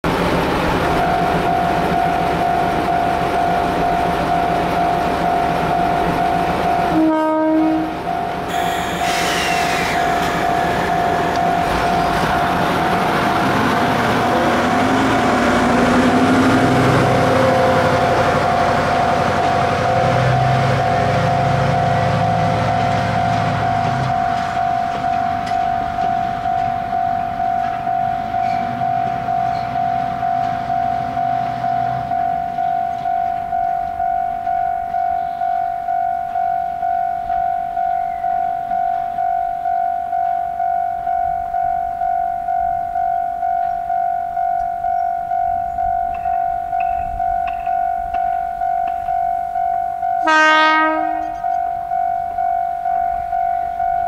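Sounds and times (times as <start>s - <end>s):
diesel locomotive engine: 0.0s - 54.0s
high ringing tone: 1.0s - 15.3s, 17.3s - 54.0s
locomotive horn blast: 6.7s - 12.5s, 50.2s - 51.5s.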